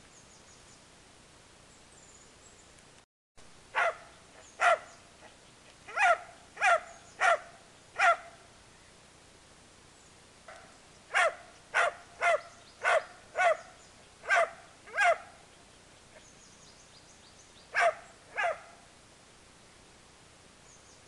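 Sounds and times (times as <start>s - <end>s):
dog barking angrily: 3.7s - 4.9s, 5.9s - 8.4s, 11.1s - 15.3s, 17.7s - 18.8s.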